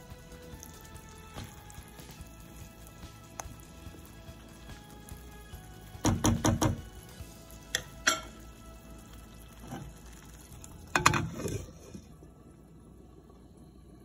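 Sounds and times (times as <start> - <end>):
spoon knocking against pot: 6.0 - 6.8, 7.8 - 8.3.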